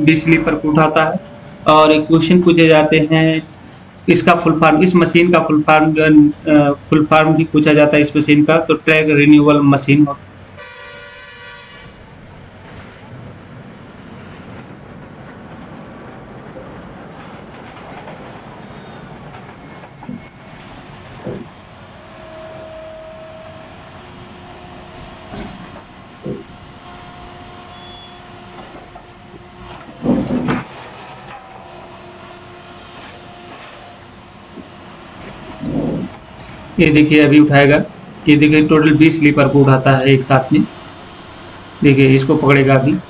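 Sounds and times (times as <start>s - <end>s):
railway machinery running: 0.0s - 43.0s
held whining tones: 16.1s - 43.0s
metallic clanks and knocks: 29.7s - 31.6s.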